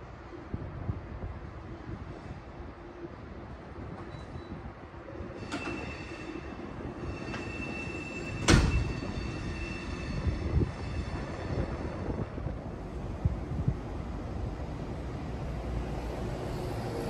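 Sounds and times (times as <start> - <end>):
train rumbling on rails: 0.0 - 17.0
high-pitched wheel squeal: 5.4 - 12.1.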